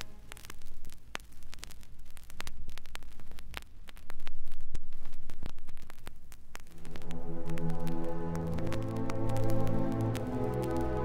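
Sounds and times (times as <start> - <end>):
low rumble and hum: 0.0 - 11.0
vinyl clicks and pops: 0.0 - 11.0
orchestral music: 6.8 - 11.0.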